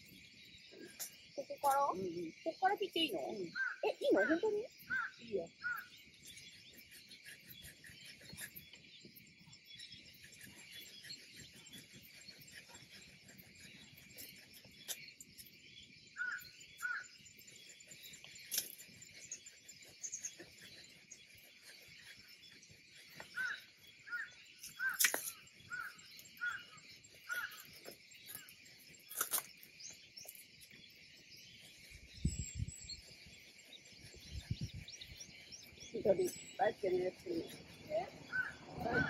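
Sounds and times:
insects chorus hissing: 0.0 - 39.0
branches snapping: 24.7 - 25.8, 29.1 - 29.6.

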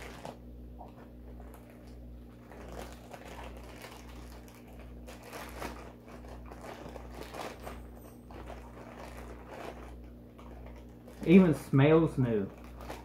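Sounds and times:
plastic bag crinkling: 0.0 - 13.0
steady low hum: 0.0 - 13.0.

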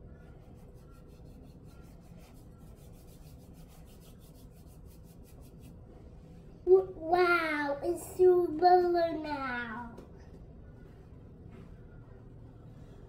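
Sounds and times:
hands rubbing dry crumbly mixture: 0.4 - 5.8.

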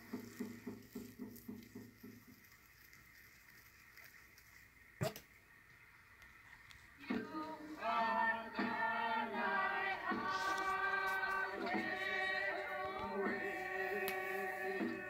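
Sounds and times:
group of voices singing: 7.0 - 15.0.

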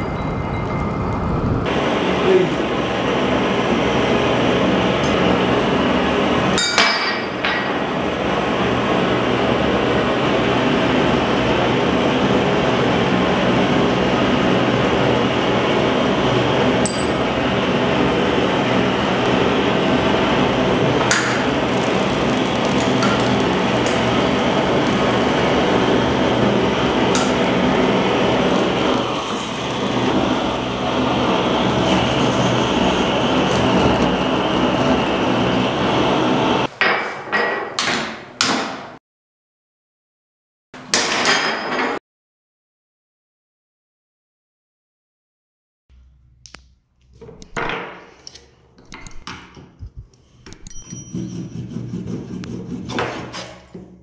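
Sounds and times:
blowtorch hissing: 1.6 - 6.5, 7.7 - 36.7
glass cracking and clinking: 21.6 - 25.0.

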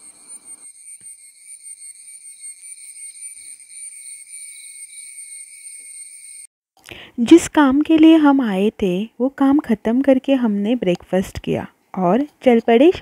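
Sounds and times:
insects chirping: 0.0 - 6.5.

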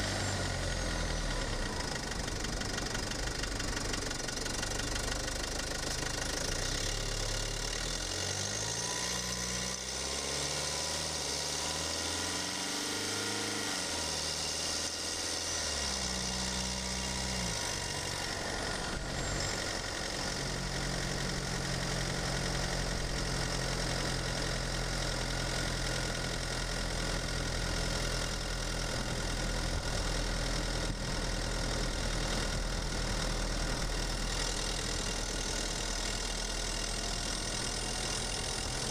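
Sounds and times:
diesel engine running: 0.0 - 38.9.

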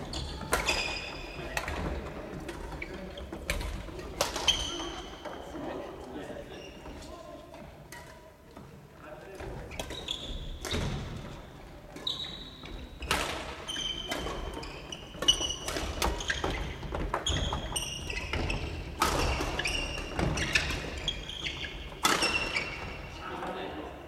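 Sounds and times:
sneakers squeaking on wooden floor: 0.0 - 5.7, 6.4 - 7.2, 9.4 - 23.3
rackets striking shuttlecocks: 13.1 - 22.9.

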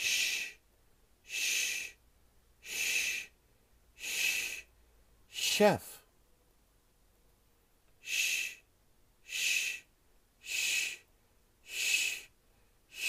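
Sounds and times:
person saying sh sound: 5.3 - 6.0.

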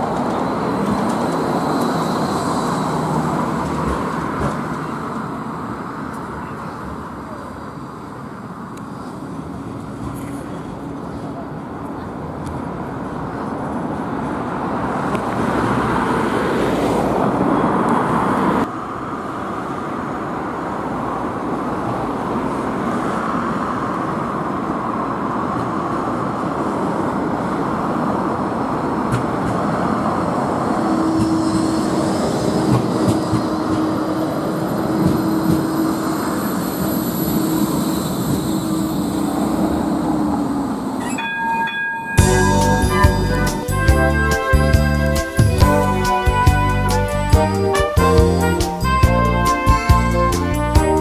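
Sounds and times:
trams rumbling on street track: 0.0 - 51.0
high whine: 30.6 - 51.0.

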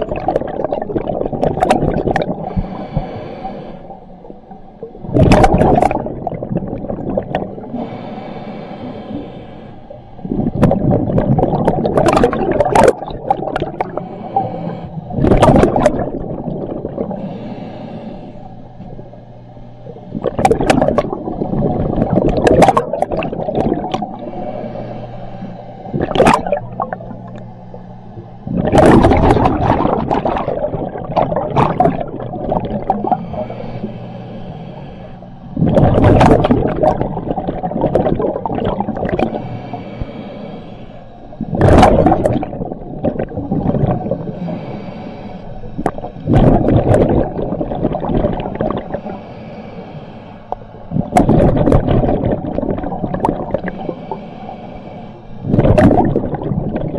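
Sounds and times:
exhaled bubbles bursting: 0.0 - 2.8, 4.2 - 7.8, 10.2 - 14.5, 15.1 - 17.3, 19.8 - 24.4, 25.9 - 33.5, 35.5 - 39.5, 41.4 - 44.4, 45.8 - 49.0, 50.9 - 54.0, 55.4 - 56.9
regulator inhale hiss: 2.1 - 5.0, 5.9 - 10.6, 13.6 - 22.4, 23.0 - 28.6, 31.8 - 35.7, 36.4 - 41.5, 42.4 - 46.4, 47.0 - 51.2, 52.8 - 55.6.

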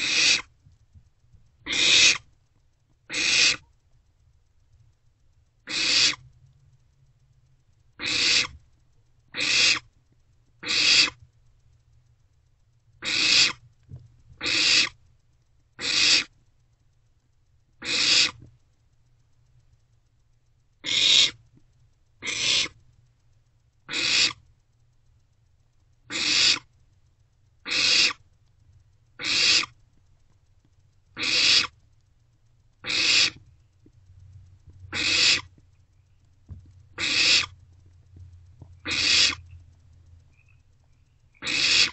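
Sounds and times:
owlets hissing begging calls: 0.0 - 0.5, 1.7 - 2.2, 3.1 - 3.6, 5.7 - 6.2, 8.0 - 8.6, 9.4 - 9.9, 10.6 - 11.2, 13.0 - 13.6, 14.4 - 15.0, 15.8 - 16.3, 17.8 - 18.4, 20.8 - 21.4, 22.2 - 22.8, 23.9 - 24.4, 26.1 - 26.7, 27.7 - 28.2, 29.2 - 29.7, 31.2 - 31.7, 32.8 - 33.4, 34.9 - 35.5, 37.0 - 37.6, 38.8 - 39.5, 41.4 - 41.9.

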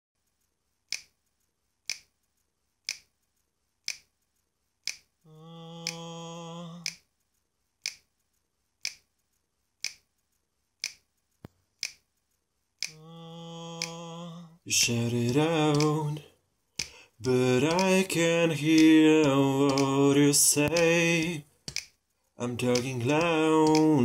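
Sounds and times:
finger snaps: 16.8 - 18.0.

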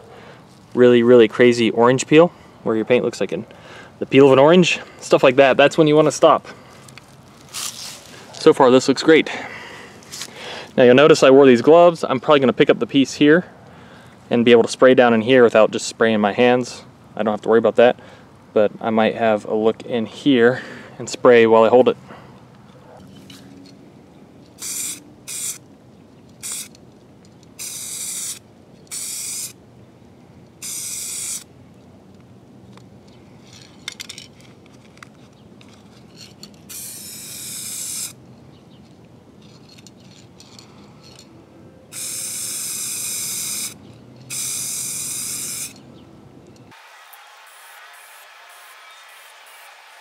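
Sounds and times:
spray paint can hissing: 24.6 - 25.6, 26.4 - 26.8, 27.6 - 29.6, 30.6 - 31.5, 36.7 - 38.2, 41.9 - 45.8, 47.0 - 50.0.

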